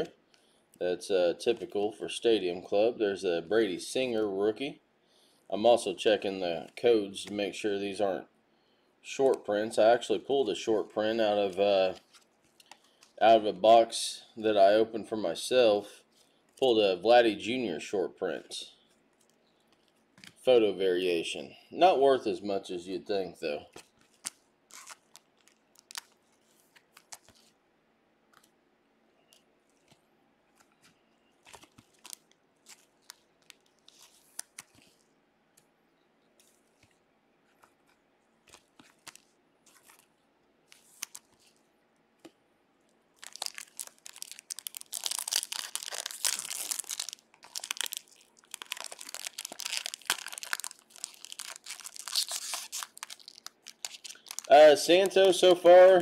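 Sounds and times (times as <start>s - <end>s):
card pack wrapper tearing: 23.8s - 27.5s, 31.4s - 35.1s, 37.6s - 40.1s, 40.7s - 41.6s, 43.2s - 56.0s.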